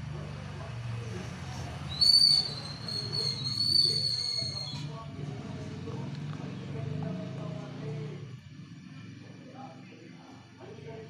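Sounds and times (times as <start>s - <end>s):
high whistling tone: 1.9s - 4.9s.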